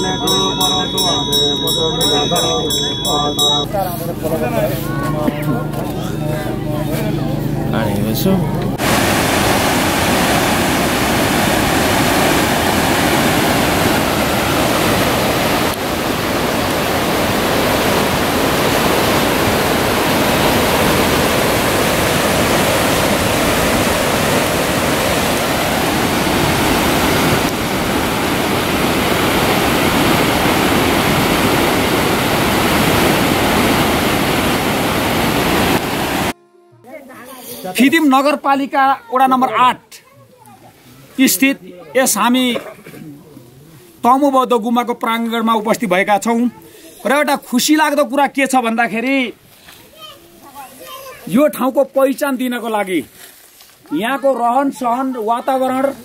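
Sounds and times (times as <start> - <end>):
loud rushing noise: 8.8 - 36.4.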